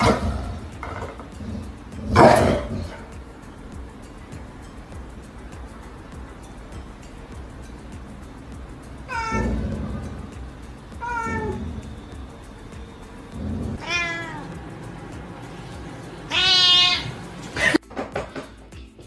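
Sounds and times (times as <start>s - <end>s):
cat meowing: 9.1s - 10.0s, 11.0s - 11.8s, 13.6s - 14.6s, 16.3s - 17.2s.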